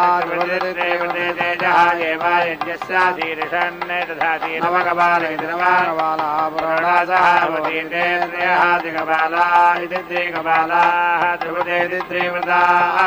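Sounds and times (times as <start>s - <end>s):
mantras chanted in unison: 0.0s - 13.0s.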